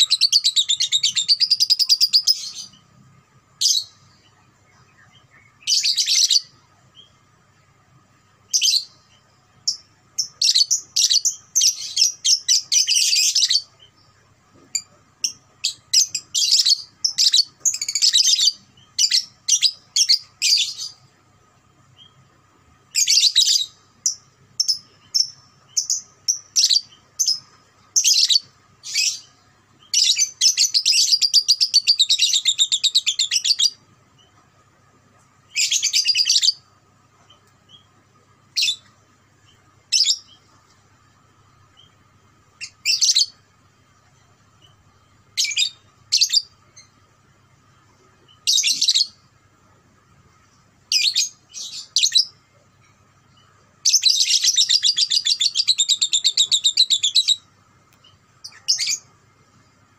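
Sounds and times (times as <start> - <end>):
lovebird chattering trills: 53.8 - 57.4.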